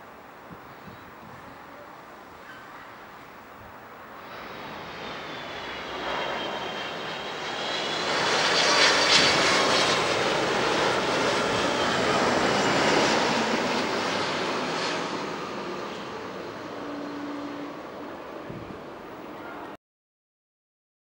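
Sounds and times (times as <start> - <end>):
jet airliner passing overhead: 3.8 - 19.8.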